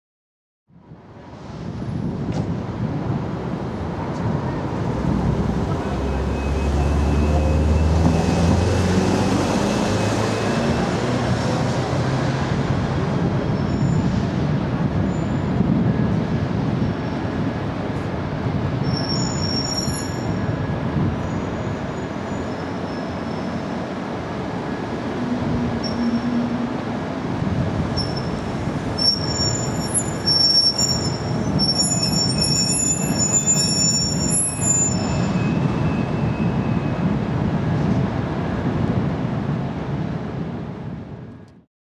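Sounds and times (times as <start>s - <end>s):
city traffic rumble: 0.7s - 41.7s
high-pitched squealing: 25.2s - 26.8s, 28.0s - 36.5s.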